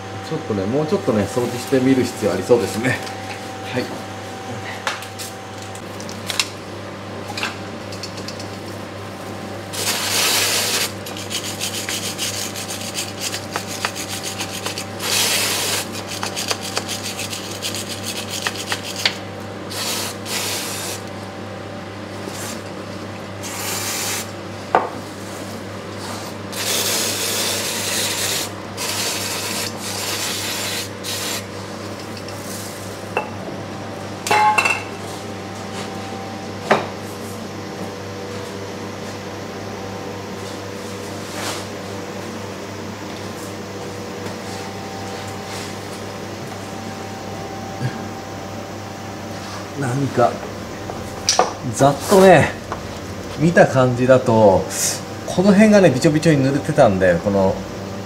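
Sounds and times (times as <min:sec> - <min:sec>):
steady hum: 0:00.0 - 0:58.0
hand tool scraping grime off metal: 0:09.9 - 0:19.2.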